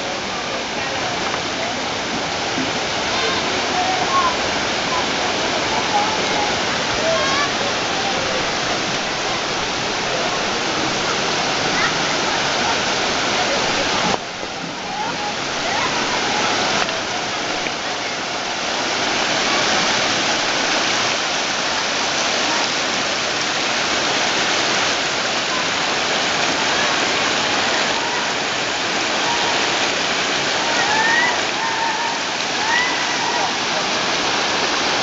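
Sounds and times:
river rushing over rocks: 0.0 - 35.0.

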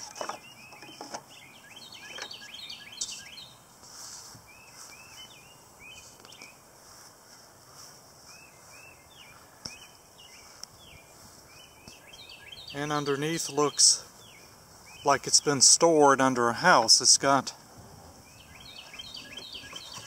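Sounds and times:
birds chirping: 0.0 - 6.8, 7.7 - 20.0.

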